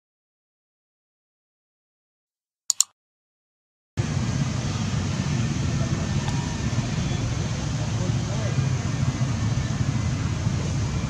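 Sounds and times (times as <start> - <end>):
low rumble with hiss: 4.0 - 11.0.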